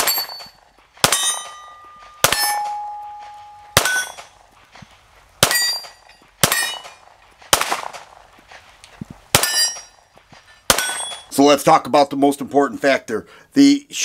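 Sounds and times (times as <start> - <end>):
pistol shots: 0.0 - 4.4, 5.4 - 8.2, 9.3 - 10.0, 10.7 - 11.3
steel target ringing clang: 0.0 - 4.4, 5.4 - 7.0, 9.4 - 10.0, 10.7 - 11.3.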